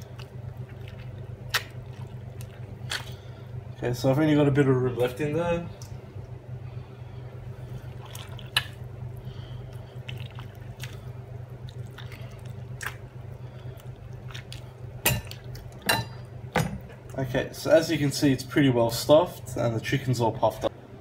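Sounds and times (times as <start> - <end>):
short squishes and clicks: 0.0 - 3.2, 8.0 - 8.8, 9.7 - 13.1
wet squelching of stuffing: 0.0 - 3.4, 7.8 - 15.8
steady low hum: 0.0 - 21.0.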